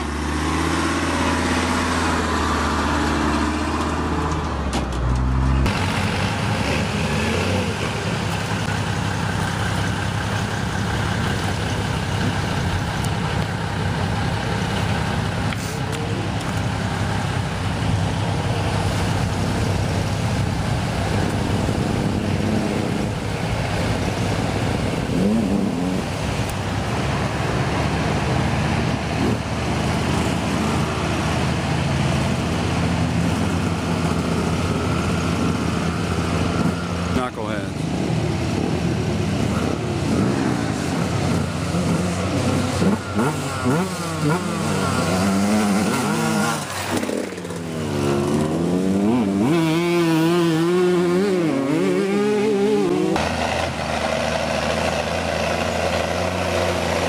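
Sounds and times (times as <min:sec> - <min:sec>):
truck engine under load: 0:00.0 - 0:57.0
truck engine idling: 0:07.6 - 0:22.1.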